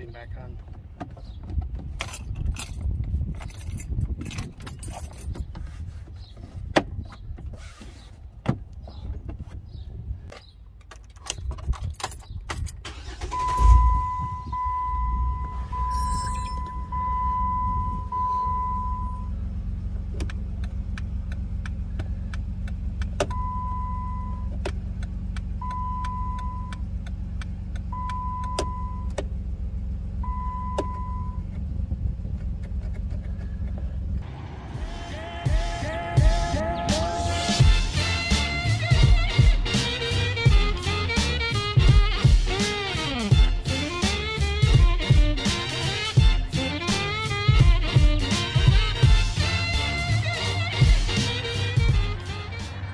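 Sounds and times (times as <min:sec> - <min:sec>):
keys rattling: 0:01.7 - 0:05.5, 0:10.4 - 0:13.0
warning chime beeps: 0:13.4 - 0:19.3
car engine idling: 0:16.6 - 0:52.9
turn signal flasher clicking: 0:20.0 - 0:29.4, 0:30.3 - 0:34.2.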